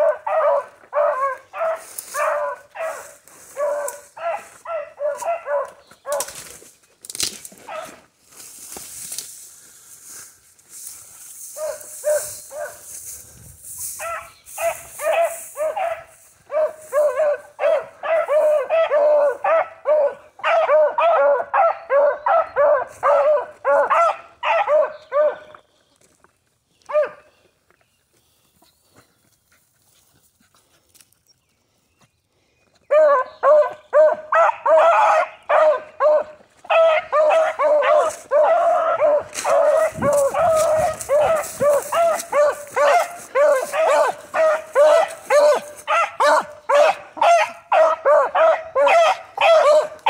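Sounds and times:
dogs baying: 0.0 - 6.3, 14.0 - 25.6, 32.9 - 50.0.

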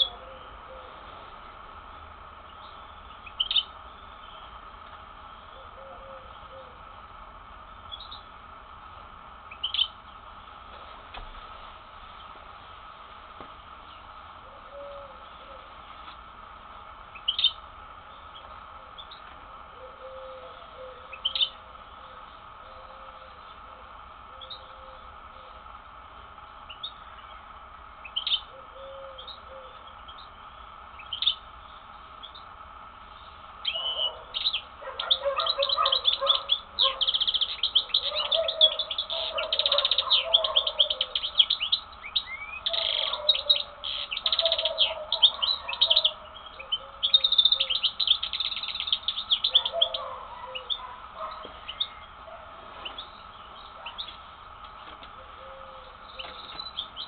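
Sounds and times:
bird calls: 0.0 - 1.1, 1.9 - 6.9, 9.5 - 10.2, 17.1 - 25.6, 26.6 - 57.0
bird twittering song with trills: 1.9 - 4.7, 7.7 - 8.3, 9.5 - 10.1, 17.1 - 19.2, 19.9 - 21.6, 24.4 - 25.0, 26.7 - 32.5, 33.1 - 52.2, 52.8 - 54.3, 55.2 - 57.0.

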